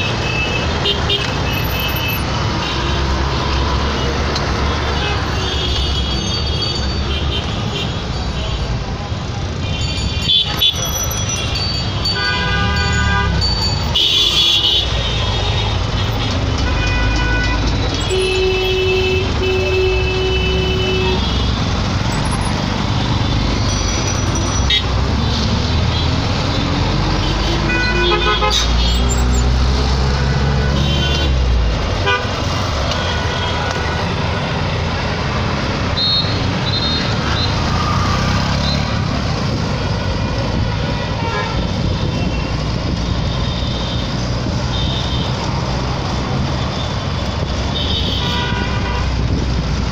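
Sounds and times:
traffic engines running: 0.0 - 49.9
car horns honking: 9.6 - 21.7, 25.8 - 29.4, 30.1 - 34.2, 47.7 - 49.3.

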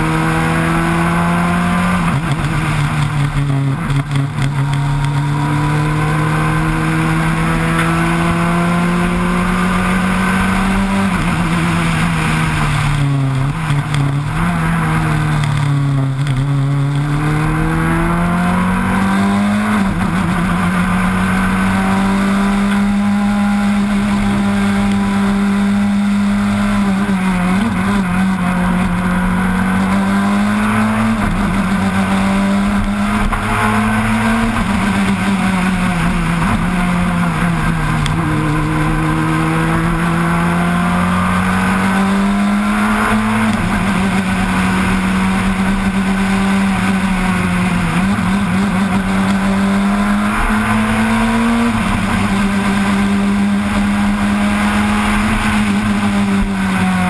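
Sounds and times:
rally car engine at high revs: 0.0 - 57.0
wind and road noise: 0.0 - 57.0.

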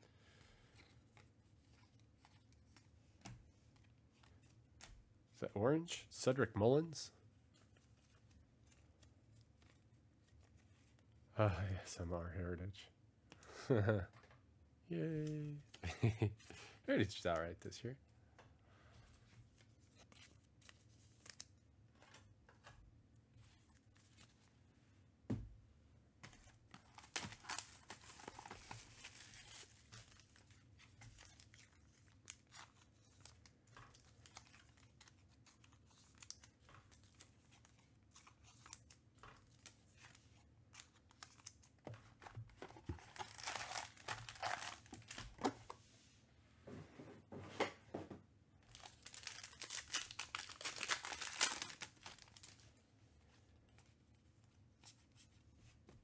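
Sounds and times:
wrappers tearing and crinkling: 26.9 - 30.5, 43.0 - 45.2, 48.7 - 52.7.

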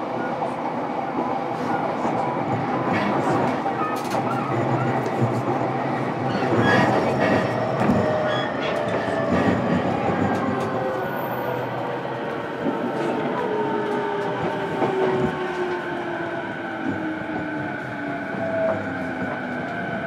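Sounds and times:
train wheels rumbling on rail: 0.0 - 20.0
rail joint clicks: 2.0 - 15.9.

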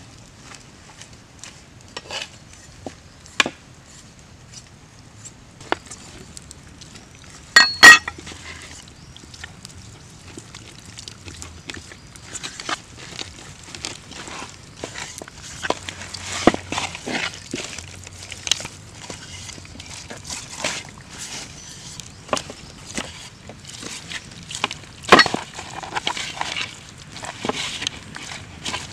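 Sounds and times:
sharp clinks: 7.6 - 8.1.

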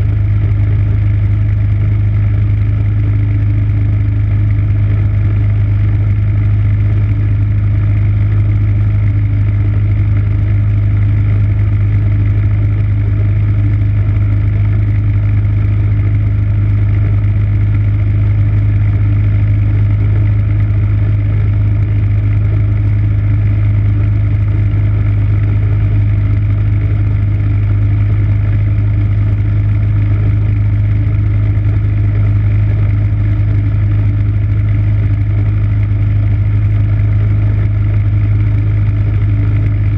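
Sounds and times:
snowblower engine running: 0.0 - 39.9.

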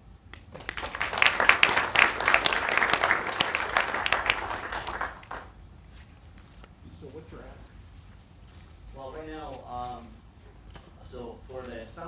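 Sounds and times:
audience applauding: 0.5 - 5.6.

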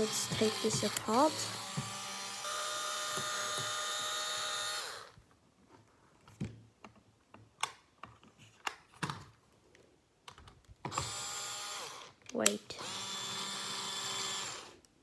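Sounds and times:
electric screwdriver running: 0.0 - 5.2, 10.9 - 12.2, 12.8 - 14.8.

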